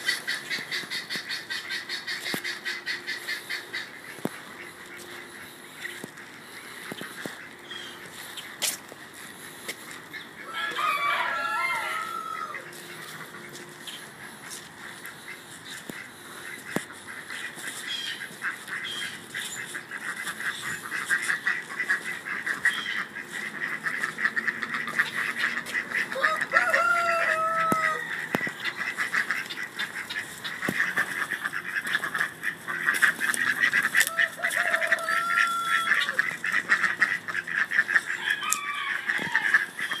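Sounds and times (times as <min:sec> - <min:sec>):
chatter of flock calls: 0:00.0 - 0:40.0
rooster crowing: 0:10.4 - 0:12.8, 0:26.1 - 0:28.4, 0:34.1 - 0:36.2, 0:38.2 - 0:40.0.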